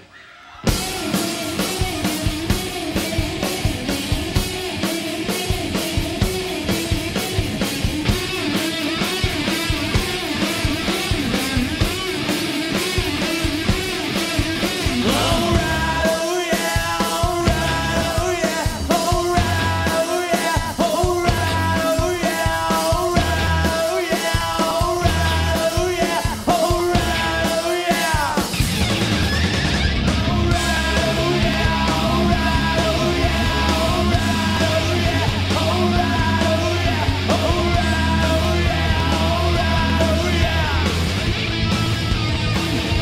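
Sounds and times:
rock song with singing: 0.0 - 43.0.

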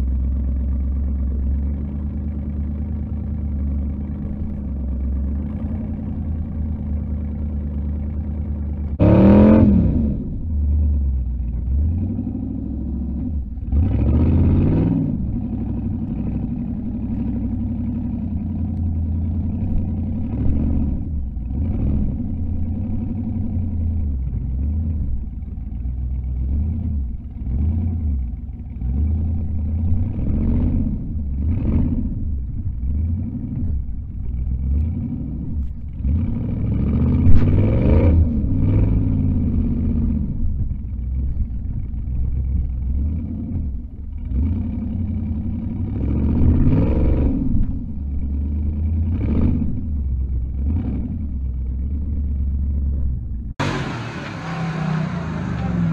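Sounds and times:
buggy engine revving: 0.0 - 55.9.

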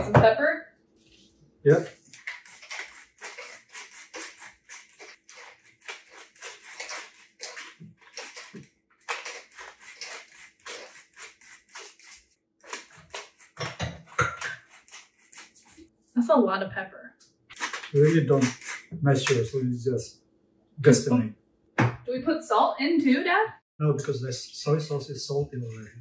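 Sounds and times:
pepper mill grinding: 1.9 - 15.8, 17.5 - 19.5.

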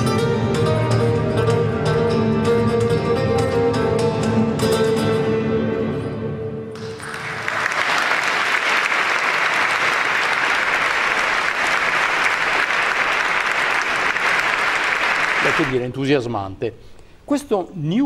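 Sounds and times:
audience applause: 6.8 - 15.8.

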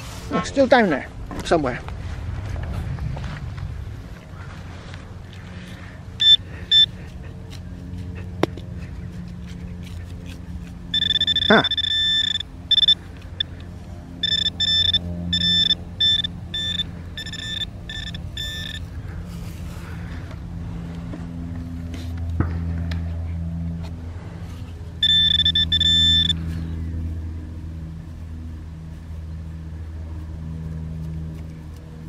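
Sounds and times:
low rumble: 1.1 - 6.2
metal detector pinpointer beeping: 6.2 - 7.0, 10.9 - 13.6, 14.2 - 18.8, 25.0 - 26.4.

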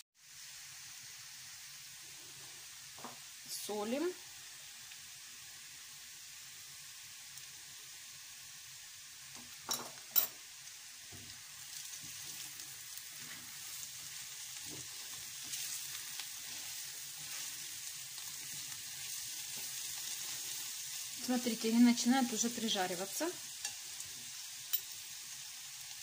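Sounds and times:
mushrooms sizzling in a frying pan: 0.2 - 26.0
spatula scraping a pan: 11.1 - 20.9.

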